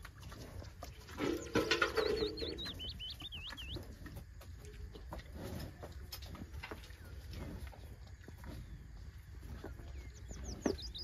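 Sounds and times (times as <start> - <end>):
small bird chirping: 0.6 - 4.9, 8.1 - 11.0.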